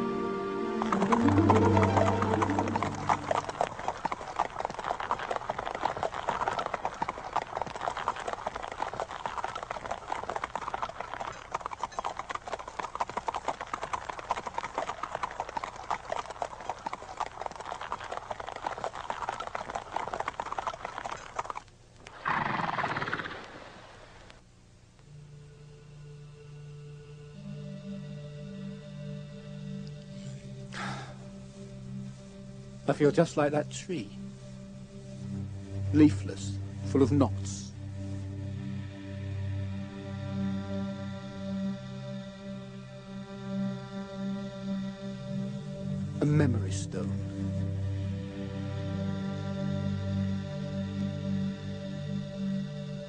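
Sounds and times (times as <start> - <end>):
horse hooves clip-clopping: 0.7 - 23.6.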